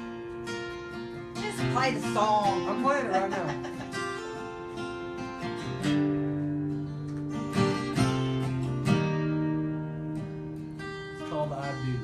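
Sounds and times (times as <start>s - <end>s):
guitar strumming chords: 0.0s - 12.0s.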